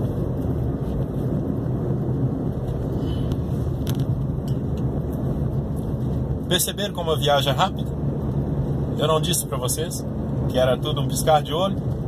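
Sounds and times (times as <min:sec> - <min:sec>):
car interior road rumble: 0:00.0 - 0:12.0.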